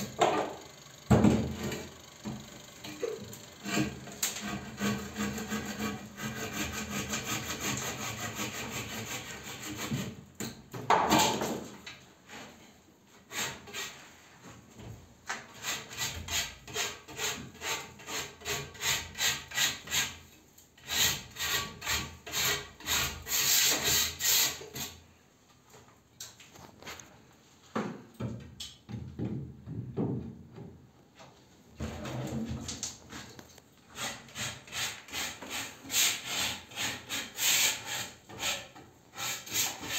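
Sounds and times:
handsaw cutting plaster: 3.6s - 10.2s, 13.3s - 14.0s, 15.5s - 20.2s, 20.8s - 25.0s, 33.9s - 39.9s.

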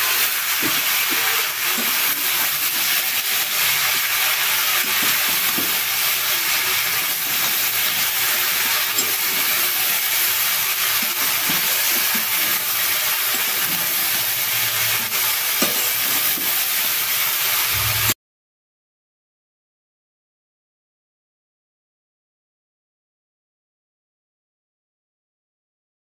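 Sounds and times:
metal spatula scraping pan: 0.0s - 18.2s
vegetables sizzling in a pan: 0.0s - 18.2s.

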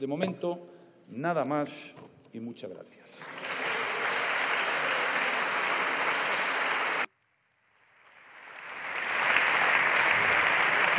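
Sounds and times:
applause: 3.2s - 7.1s, 7.9s - 10.9s.

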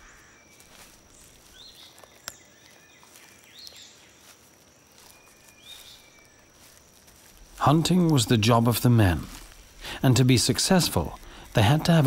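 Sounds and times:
bird chirps: 0.0s - 6.7s.

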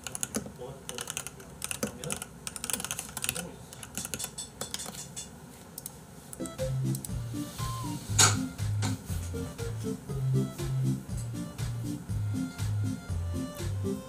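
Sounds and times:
background music with bass line: 6.4s - 14.0s.

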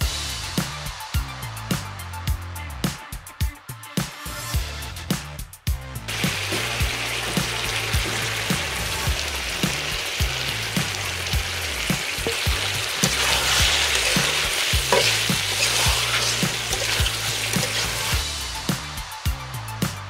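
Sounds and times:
food sizzling in hot oil: 6.1s - 19.0s
metal spatula stirring in pan: 11.2s - 18.2s.

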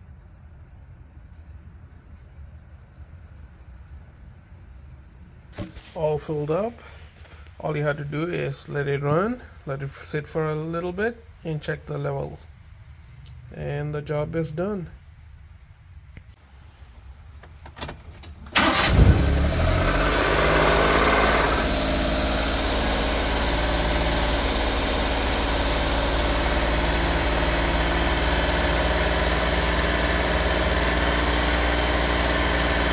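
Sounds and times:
engine cranking and idling: 17.5s - 32.9s.

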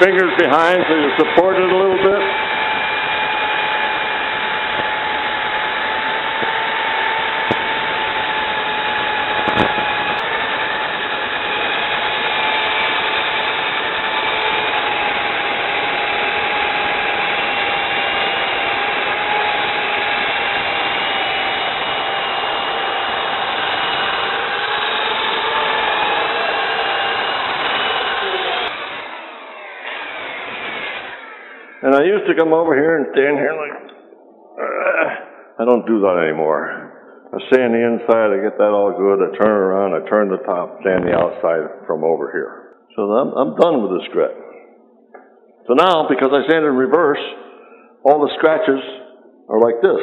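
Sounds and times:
electric drill motor whine: 0.1s - 32.0s
sanding disc hissing on wood: 7.9s - 31.8s.

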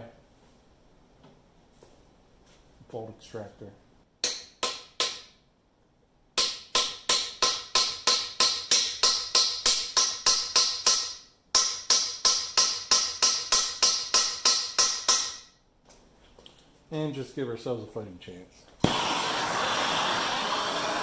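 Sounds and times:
hammer striking metal: 4.2s - 5.4s, 6.4s - 15.6s.

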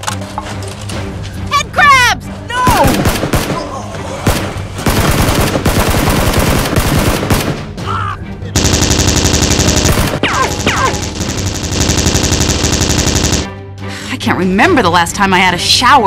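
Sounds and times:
automatic gunfire: 2.8s - 3.6s, 4.3s - 7.6s, 8.6s - 13.5s.

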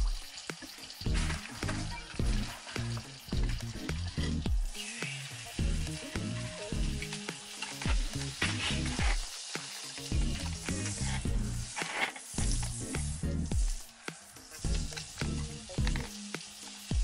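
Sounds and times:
low pulsing beat: 0.0s - 0.4s, 1.0s - 4.8s, 5.6s - 7.1s, 10.1s - 11.8s, 12.4s - 13.9s, 14.6s - 16.2s
butter sizzling in a frying pan: 0.0s - 17.0s.

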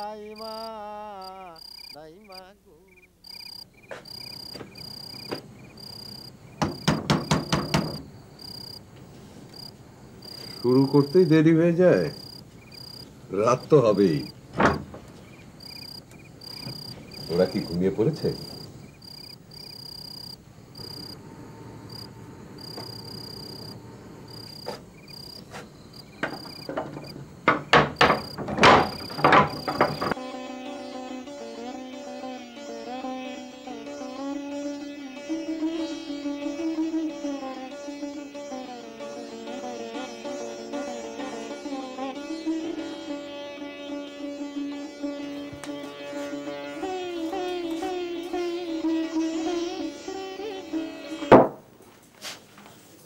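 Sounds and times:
crickets chirping: 0.0s - 30.2s
knocking on a wooden door: 6.6s - 8.0s, 14.6s - 15.0s, 26.2s - 30.2s, 51.3s - 51.6s.

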